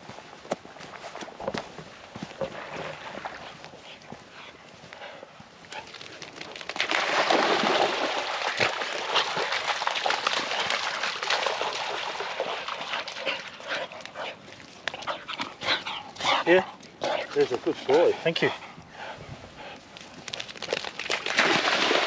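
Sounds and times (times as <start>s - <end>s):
dogs splashing through water: 5.6s - 18.4s, 19.9s - 22.0s.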